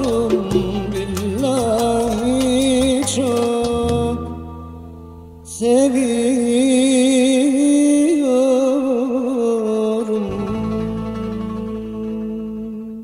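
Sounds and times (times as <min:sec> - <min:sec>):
low musical accompaniment: 0:00.0 - 0:08.0, 0:09.6 - 0:13.0.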